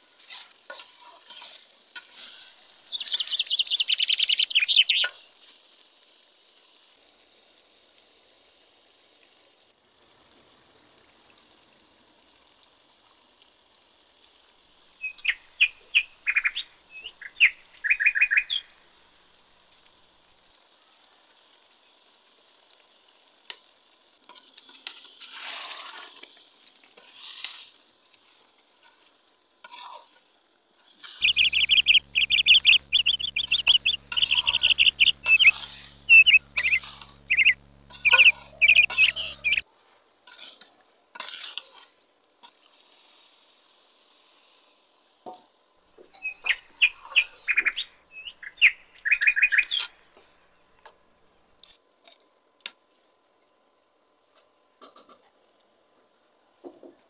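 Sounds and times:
faint steady hiss: 0:00.0 - 0:29.6, 0:30.6 - 0:39.7, 0:42.1 - 0:57.0
metal spatula scraping a pot: 0:00.2 - 0:02.4.

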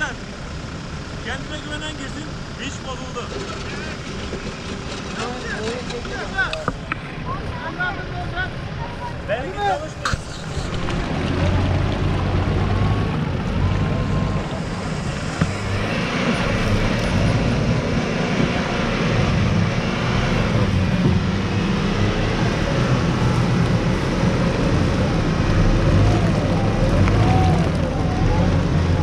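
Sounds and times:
truck engine running hard: 0:00.0 - 0:29.0
tyres churning in mud: 0:01.3 - 0:29.0.

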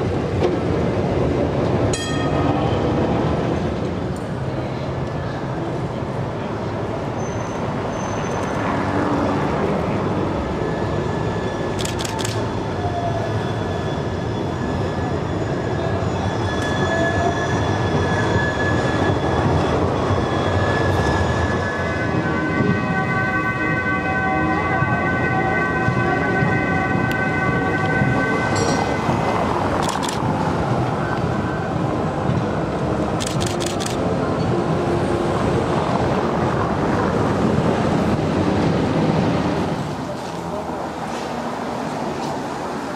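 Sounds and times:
trams and traffic passing: 0:00.0 - 0:42.9
high multi-tone squeal: 0:10.2 - 0:24.8.

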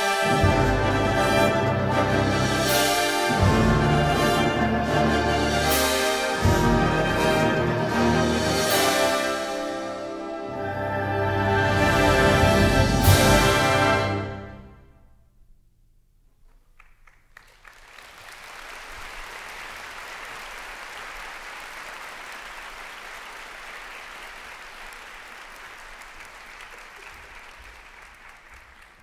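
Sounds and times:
audience applauding: 0:16.6 - 0:29.0.

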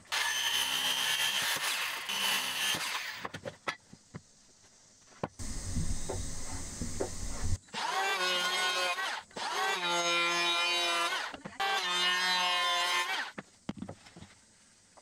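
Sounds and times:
low rumbling noise: 0:05.4 - 0:07.6.

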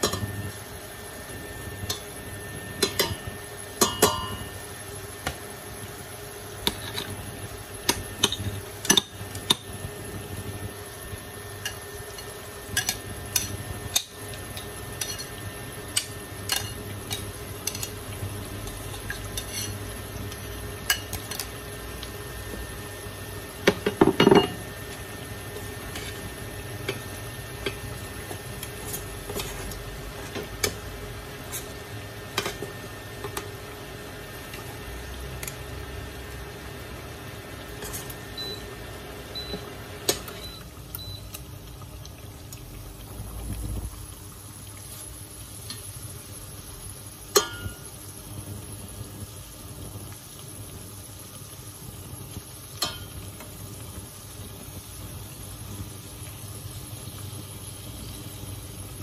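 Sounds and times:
food deep-frying in oil: 0:00.0 - 0:59.0
metal tongs clinking: 0:16.0 - 0:18.0.

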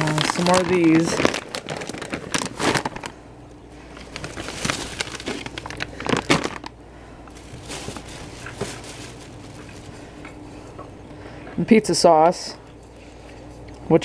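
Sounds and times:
plastic packaging crinkling: 0:00.0 - 0:03.2, 0:03.8 - 0:10.4
faint steady hum: 0:00.0 - 0:14.0.

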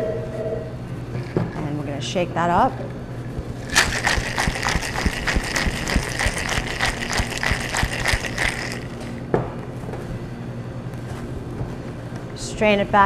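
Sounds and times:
cocktail shaker rattling: 0:03.6 - 0:09.2.

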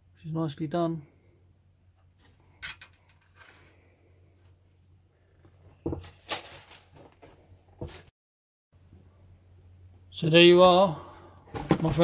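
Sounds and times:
plastic parts knocking and rattling: 0:11.5 - 0:12.0.

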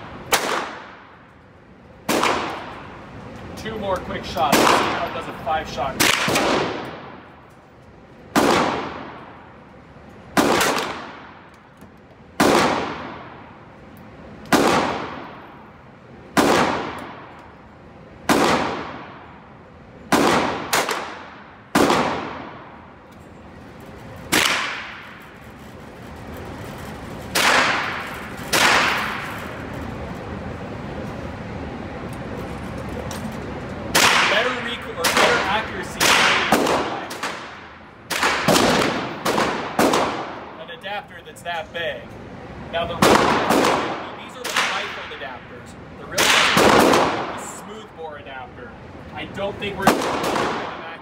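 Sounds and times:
gunshots echoing indoors: 0:00.0 - 0:01.3, 0:02.0 - 0:03.0, 0:04.5 - 0:05.2, 0:06.0 - 0:07.4, 0:08.3 - 0:11.5, 0:12.4 - 0:13.6, 0:14.4 - 0:15.5, 0:16.3 - 0:17.5, 0:18.2 - 0:19.5, 0:20.1 - 0:22.9, 0:24.2 - 0:25.3, 0:27.3 - 0:29.7, 0:33.9 - 0:40.6, 0:43.0 - 0:45.1, 0:46.1 - 0:47.4, 0:49.8 - 0:50.9.

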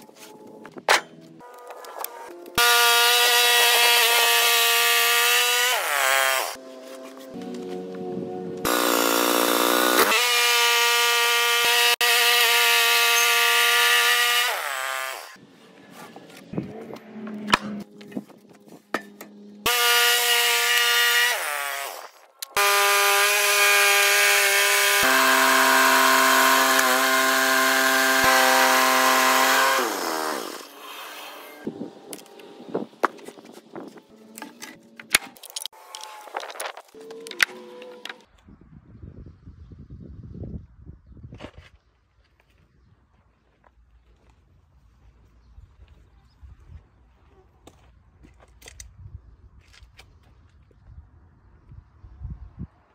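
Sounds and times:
bandsaw sawmill whining: 0:02.6 - 0:06.6, 0:08.6 - 0:15.4, 0:19.7 - 0:31.7
wood pieces knocking and clattering: 0:34.4 - 0:38.2.

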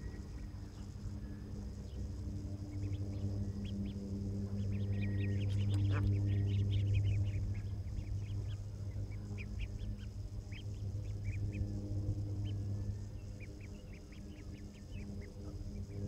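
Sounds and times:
steady low hum: 0:00.0 - 0:16.0
ducklings peeping: 0:02.6 - 0:11.7.

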